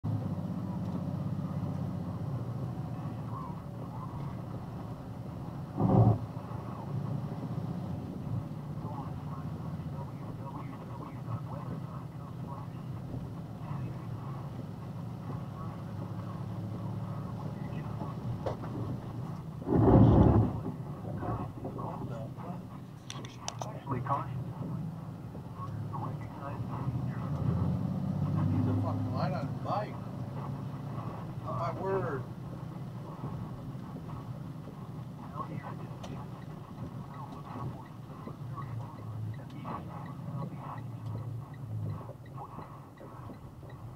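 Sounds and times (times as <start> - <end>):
truck engine and road noise: 0.0 - 43.9
light ticks: 0.8 - 1.0, 33.7 - 43.9.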